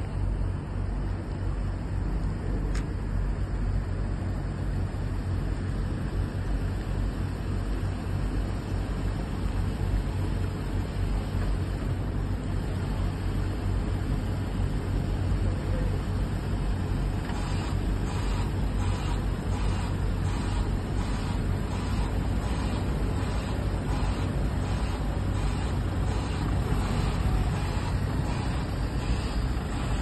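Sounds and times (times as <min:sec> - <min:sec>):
van engine low rumble: 0:00.0 - 0:30.0
faint click: 0:02.7 - 0:02.9.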